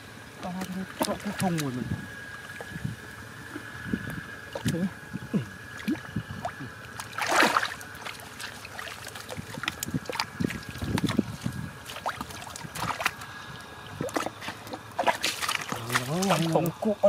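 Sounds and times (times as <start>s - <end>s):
hands splashing in muddy water: 5.8s - 13.3s, 13.9s - 16.7s.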